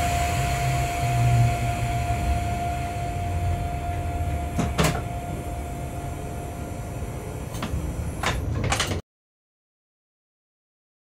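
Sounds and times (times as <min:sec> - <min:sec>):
thin steady tone: 0:00.0 - 0:08.2
locomotive cab mechanical hum: 0:00.0 - 0:09.0.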